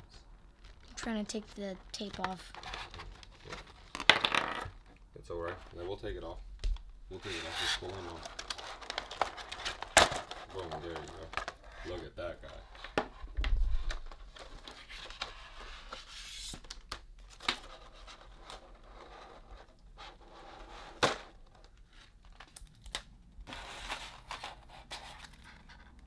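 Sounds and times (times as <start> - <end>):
plastic blister trays crinkling: 7.3 - 12.6.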